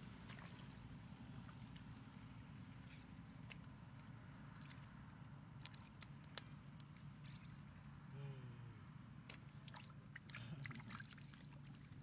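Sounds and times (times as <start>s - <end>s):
wet splashes in shallow water: 0.1s - 8.0s, 9.2s - 12.0s.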